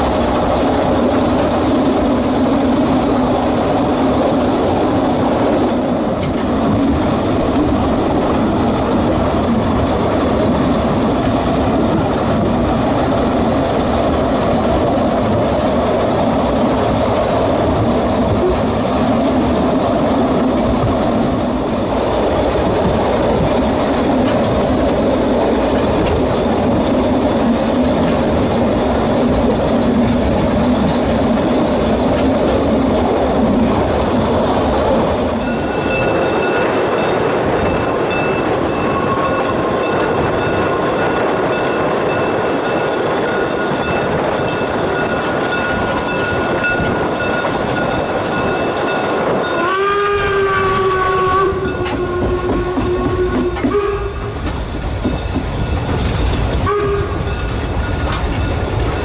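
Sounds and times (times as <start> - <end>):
wheels rumbling on rail: 0.0 - 59.0
steam locomotive whistle: 38.7 - 39.8, 49.4 - 54.4, 56.6 - 57.3.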